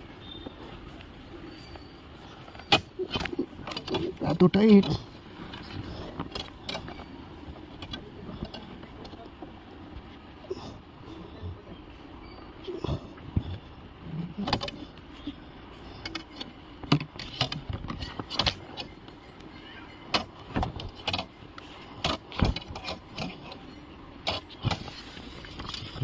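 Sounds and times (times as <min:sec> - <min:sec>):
wire clicking and scraping in car door: 0:16.0 - 0:19.0, 0:20.1 - 0:26.0.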